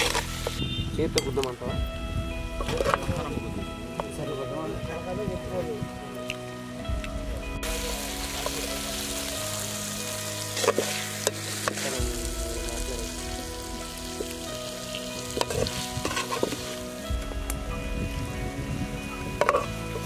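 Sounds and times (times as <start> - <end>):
background music: 0.0 - 20.0
chicken sizzling in a pan: 7.6 - 17.0
ladle stirring: 14.2 - 16.9.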